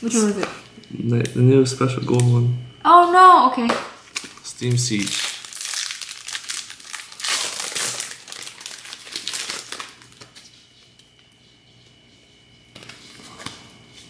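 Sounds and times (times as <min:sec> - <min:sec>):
foil wrapper crinkling and tearing: 0:04.1 - 0:10.5.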